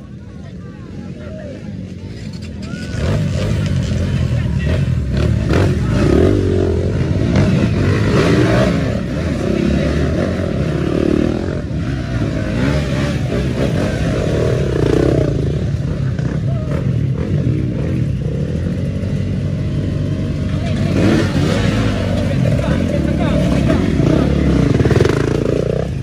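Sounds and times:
dirt bike engine revving: 0:02.8 - 0:26.0.

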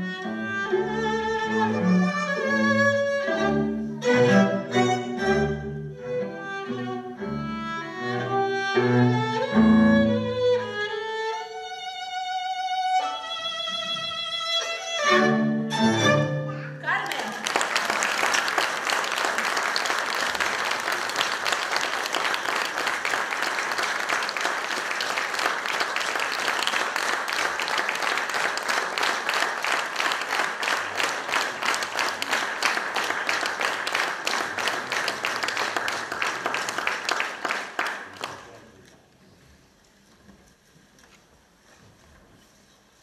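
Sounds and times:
audience applauding: 0:16.8 - 0:38.8.

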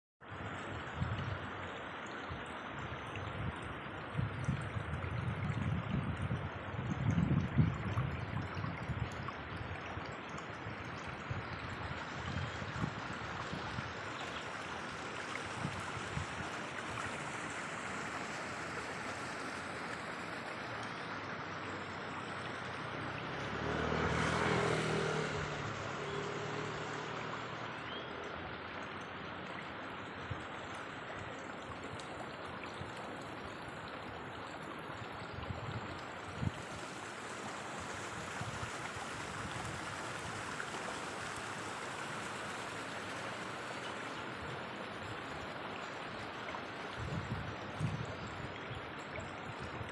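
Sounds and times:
steady rushing outdoor noise: 0:00.3 - 0:49.9
motor vehicle passing by: 0:21.4 - 0:29.0.

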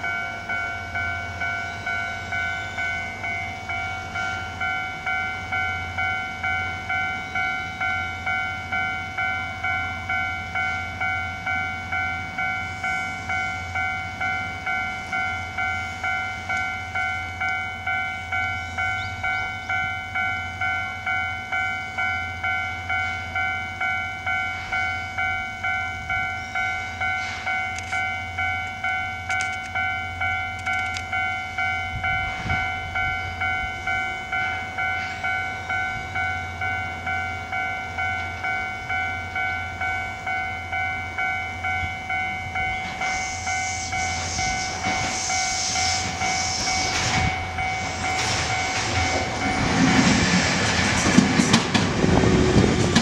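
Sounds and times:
level crossing warning bell: 0:00.0 - 0:53.0.

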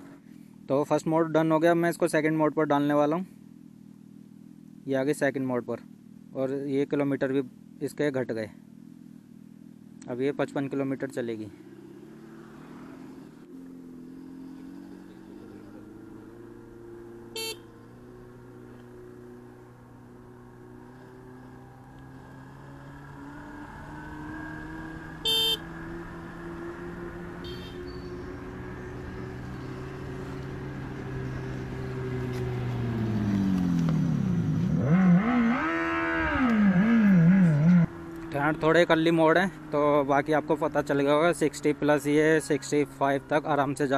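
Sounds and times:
electric motorcycle engine hum: 0:08.6 - 0:10.0, 0:11.6 - 0:40.0.

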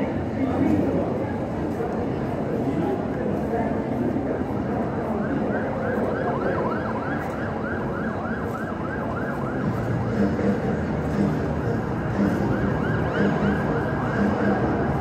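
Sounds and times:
crowd hum: 0:00.0 - 0:15.0
electronic yelp siren: 0:05.2 - 0:10.3, 0:12.2 - 0:15.0.

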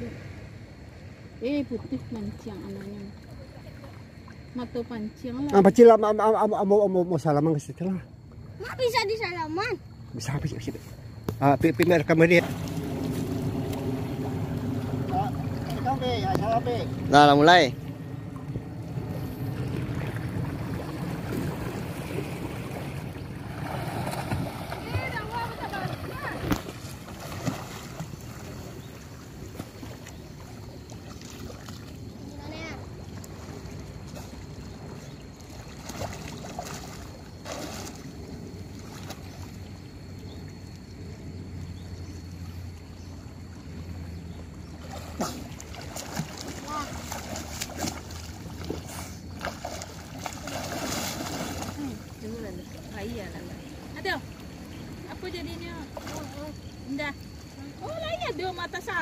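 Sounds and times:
faint splashes: 0:00.0 - 0:05.6, 0:07.8 - 0:59.0
sea water: 0:00.0 - 0:59.0
wind: 0:00.0 - 0:59.0
low hum: 0:10.0 - 0:59.0
shallow seawater washing: 0:12.0 - 0:41.5, 0:44.7 - 0:59.0.

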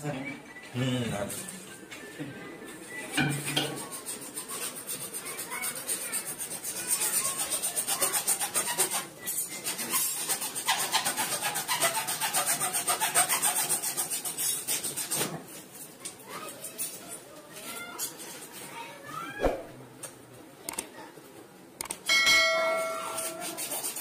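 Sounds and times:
hand tool rasping strokes: 0:04.0 - 0:15.3, 0:22.7 - 0:24.0.

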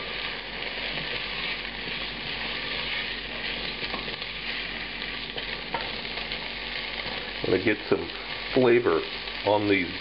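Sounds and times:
beans sizzling in a pot: 0:00.0 - 0:10.0
spatula scraping a pot: 0:00.9 - 0:06.4.

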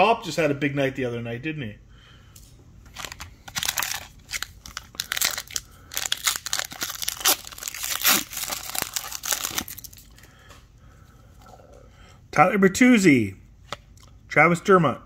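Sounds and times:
foil wrapper crinkling: 0:02.9 - 0:10.3.

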